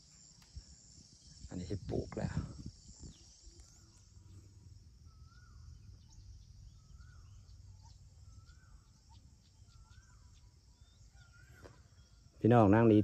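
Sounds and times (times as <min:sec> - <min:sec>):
high insect hum: 0:00.0 - 0:13.0
bird whistling: 0:05.1 - 0:12.2.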